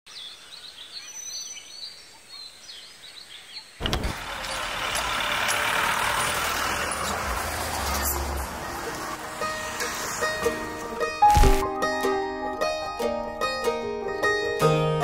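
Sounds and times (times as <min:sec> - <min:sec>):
car engine rumbling: 0:03.8 - 0:11.2
street traffic noise: 0:03.8 - 0:11.6.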